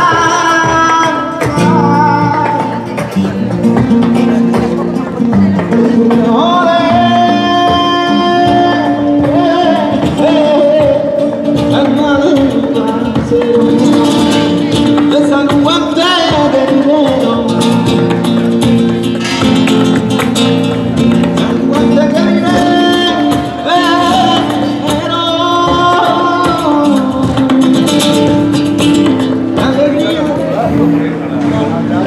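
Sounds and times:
acoustic guitar: 0.0 - 32.0.

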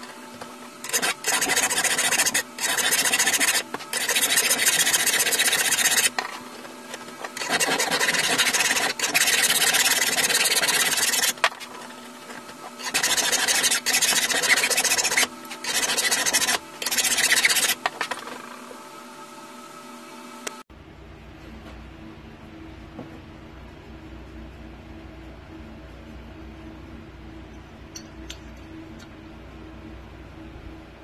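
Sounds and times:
file rasping on metal rod: 0.8 - 12.0, 12.7 - 18.4.

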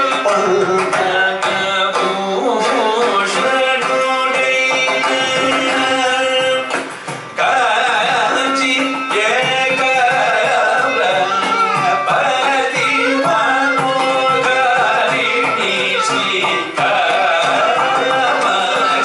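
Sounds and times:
hand drum percussion: 0.0 - 19.0
men singing ornamented notes: 0.0 - 19.0
violin: 7.8 - 19.0.

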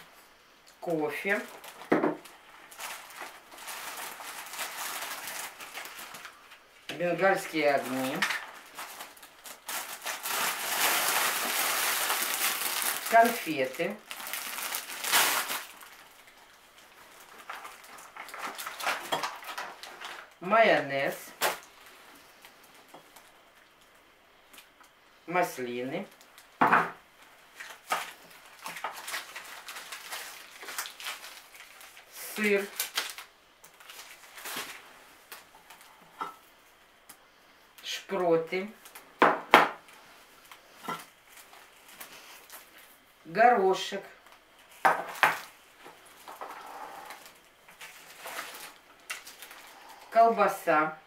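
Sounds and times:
sack and plastic packaging rustling: 1.1 - 23.4, 27.5 - 36.0, 44.6 - 50.2
burlap sack rustling: 1.3 - 6.4, 7.6 - 16.1.

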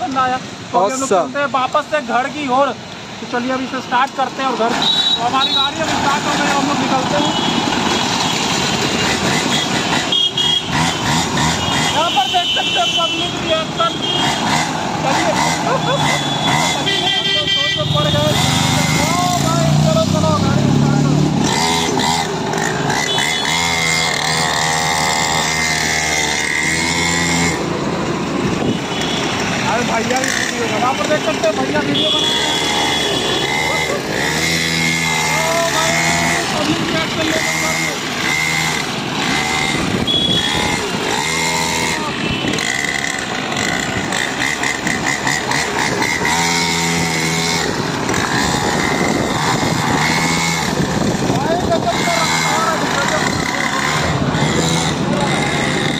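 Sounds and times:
street traffic: 0.0 - 55.9
small dirt bike engine: 3.4 - 55.9
horn blasts: 4.7 - 5.8, 9.4 - 14.7, 21.5 - 25.6, 30.2 - 35.1, 39.3 - 43.8.

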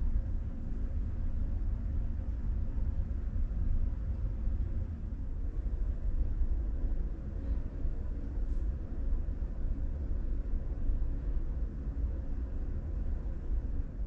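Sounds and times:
room hum with faint hiss: 0.0 - 14.0.

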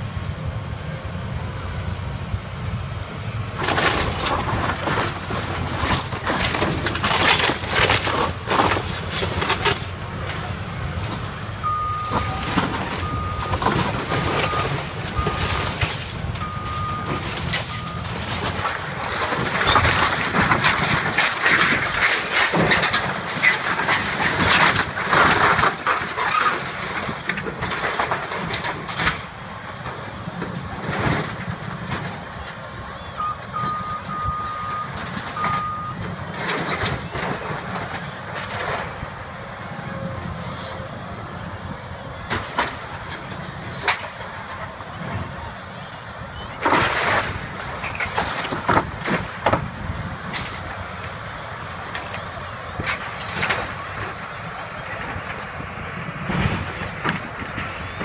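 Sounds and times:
excavator engine running: 0.0 - 58.0
sheet metal crashing and crumpling: 3.6 - 10.5, 17.0 - 29.4, 46.6 - 50.8
backup alarm beeping: 11.6 - 15.7, 16.4 - 18.1, 33.2 - 36.0.

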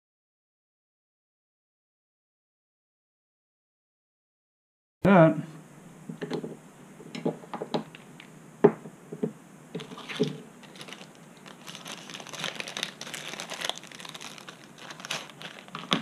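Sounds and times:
small tools knocking on mat: 8.6 - 10.4
plastic bag crinkling: 9.8 - 16.0.

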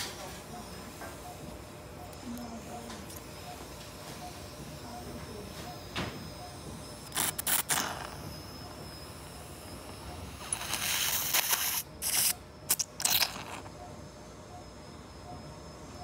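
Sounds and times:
surgical suction slurping: 7.0 - 8.4, 9.4 - 13.7.

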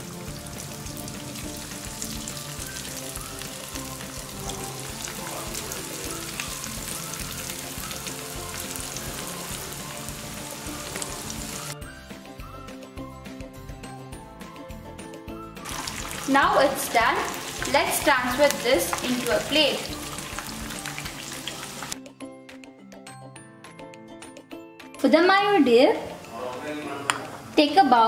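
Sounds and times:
chicken deep-frying in oil: 0.0 - 11.8, 15.6 - 22.0
background music: 0.0 - 28.0.

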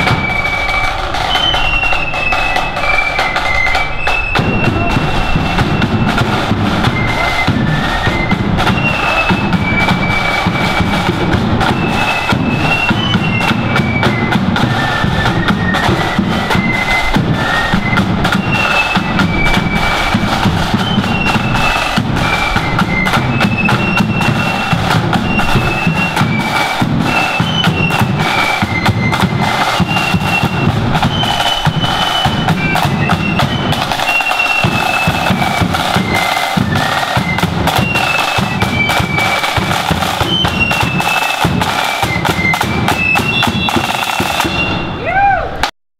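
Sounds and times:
rapid snare drumming: 0.0 - 45.0
flutes playing high melody: 0.0 - 45.7
bass drum beat: 4.4 - 40.3.

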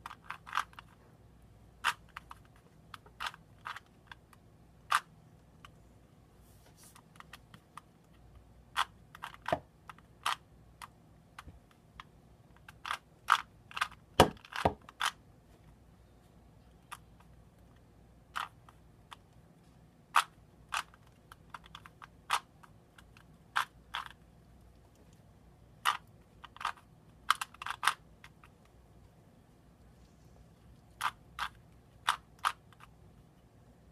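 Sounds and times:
puzzle cube clicking: 0.0 - 1.0, 1.8 - 5.8, 7.0 - 15.2, 16.8 - 19.3, 20.1 - 24.2, 25.8 - 28.7, 30.9 - 33.0.

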